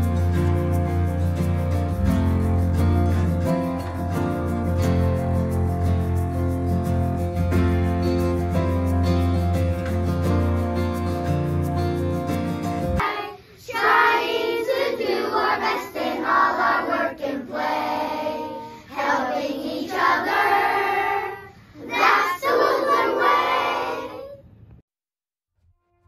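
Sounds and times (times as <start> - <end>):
soft guitar music: 0.0 - 13.2
children singing in unison: 13.0 - 24.3.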